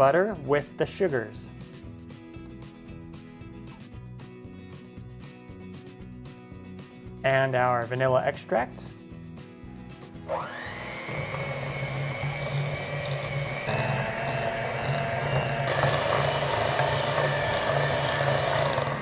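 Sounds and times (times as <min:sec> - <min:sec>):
electric hand mixer motor whine: 0:10.3 - 0:19.0.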